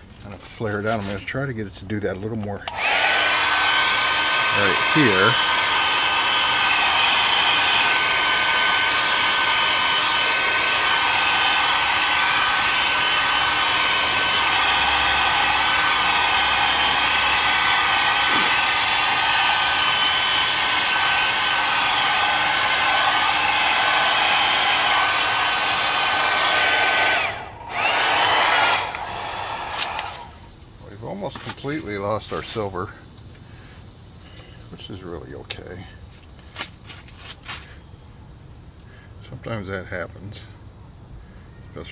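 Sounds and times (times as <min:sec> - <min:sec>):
hot-air blower running: 0:02.7 - 0:30.4.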